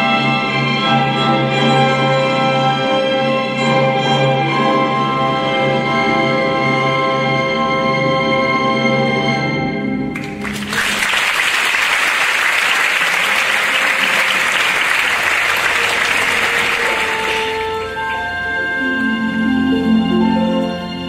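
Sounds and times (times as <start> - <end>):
orchestral ballet music: 0.0 - 21.0
audience applause: 10.2 - 18.3.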